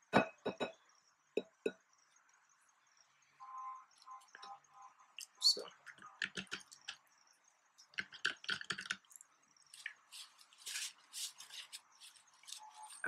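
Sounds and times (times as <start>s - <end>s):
glass bowl and plastic meter clicking: 5.2s - 7.0s.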